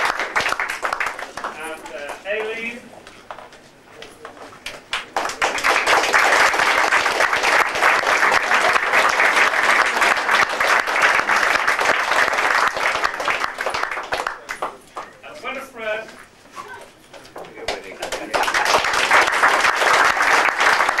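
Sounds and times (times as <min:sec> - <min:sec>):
audience applauding: 0:00.0 - 0:02.5, 0:04.7 - 0:15.2, 0:17.6 - 0:21.0.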